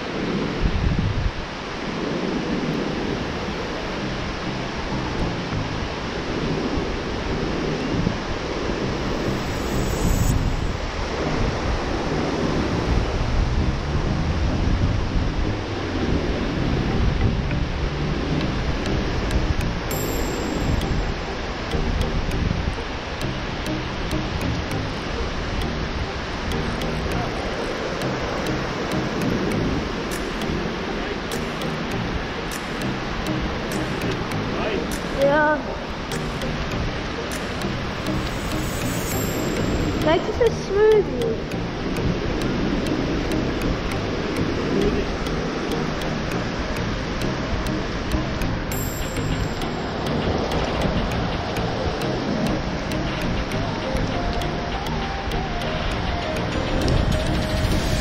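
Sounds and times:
surf breaking on a beach: 0.0s - 4.1s
waves breaking on a beach: 0.0s - 13.5s, 14.6s - 58.0s
wind buffeting microphone: 0.0s - 58.0s.

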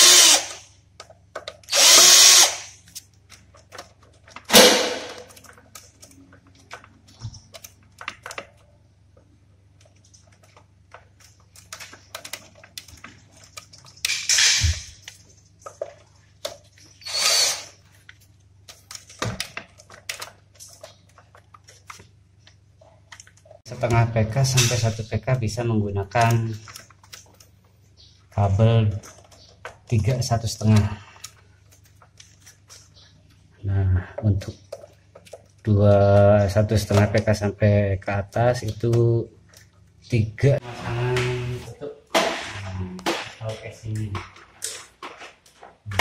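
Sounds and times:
drill-driver driving screws: 0.0s - 0.6s, 1.7s - 2.7s, 17.0s - 17.8s.

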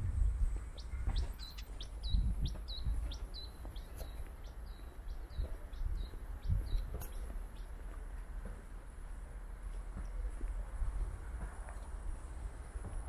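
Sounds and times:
low irregular thuds: 0.0s - 11.8s
bird chirping: 0.4s - 7.9s.

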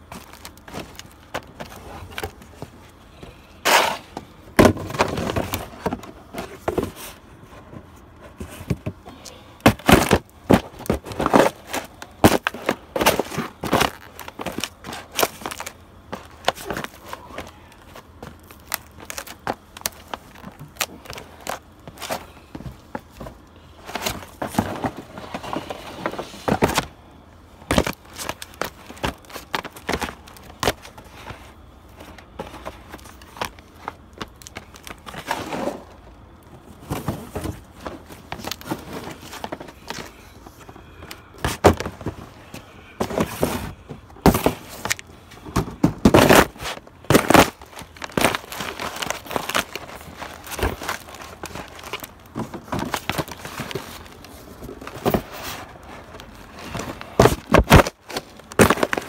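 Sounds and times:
cardboard boxes stomped flat: 3.6s - 7.1s, 9.6s - 17.5s, 18.2s - 26.9s, 27.7s - 30.9s, 41.4s - 42.2s, 43.0s - 54.0s, 56.7s - 59.0s.

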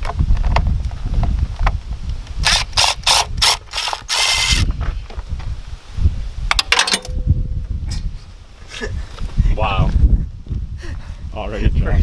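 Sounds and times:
cordless power tool bursts: 2.4s - 4.7s.

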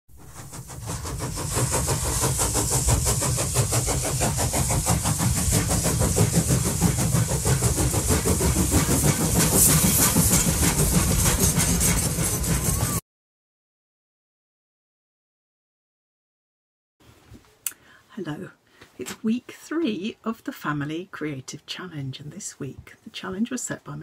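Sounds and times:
steam hiss: 0.1s - 13.0s
steam locomotive chugging: 0.1s - 13.0s.

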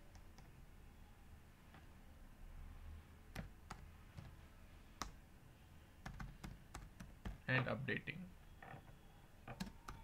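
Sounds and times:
computer keyboard keystrokes: 6.0s - 7.4s.

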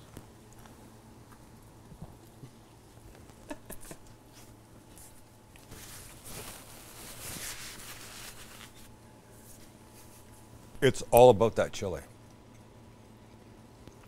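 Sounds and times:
soft chewing clicks: 0.0s - 5.7s, 12.1s - 14.0s
napkin rustling: 5.1s - 8.9s.

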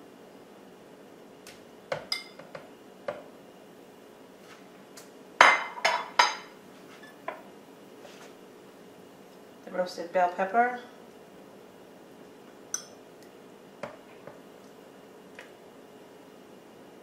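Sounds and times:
glass bowls clinking: 2.1s - 2.4s, 5.4s - 6.5s, 12.7s - 13.0s.

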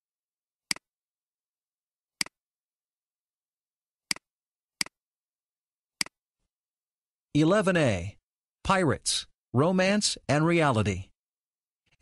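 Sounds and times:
computer mouse clicks: 0.7s - 0.9s, 4.1s - 5.0s.

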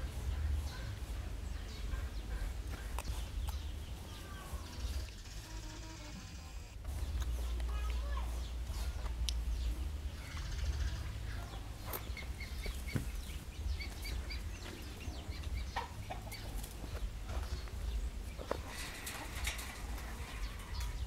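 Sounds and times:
steady low rumble: 6.8s - 21.0s
fowl clucking: 15.6s - 16.6s.

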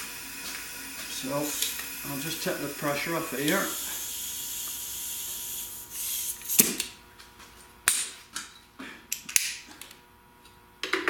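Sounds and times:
compressed air hissing: 0.0s - 6.8s.

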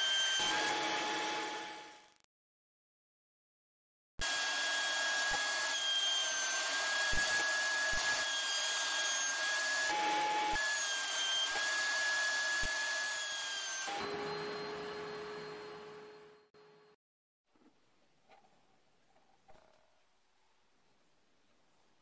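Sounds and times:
wood router whining: 4.2s - 17.0s.

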